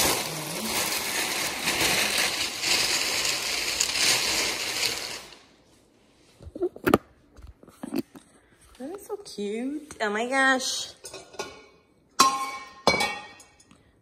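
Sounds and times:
crinkly wrapping rustling: 0.0 - 5.4.

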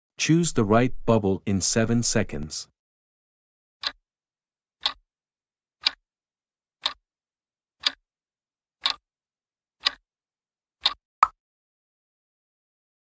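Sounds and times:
clock ticks: 4.8 - 5.0, 5.8 - 6.0, 6.8 - 7.0, 7.8 - 8.0, 8.8 - 9.0, 9.8 - 10.0, 10.8 - 11.0.

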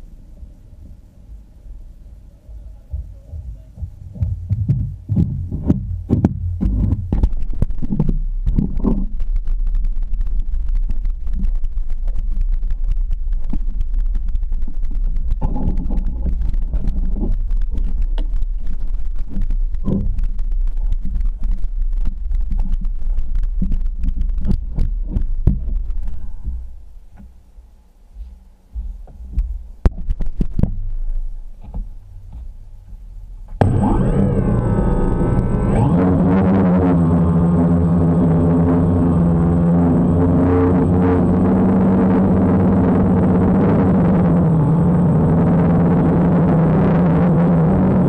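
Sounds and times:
muffled low rumble: 0.0 - 48.0
small knocks and thuds: 2.9 - 9.5, 23.6 - 27.4.

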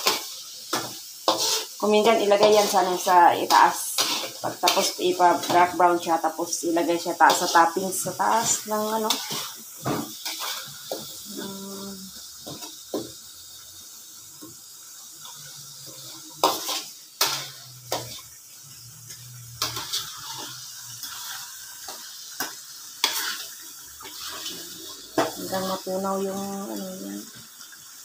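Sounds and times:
metal spatula scraping a wok: 0.0 - 11.2, 15.3 - 26.1
sizzling in a wok: 0.0 - 28.0.

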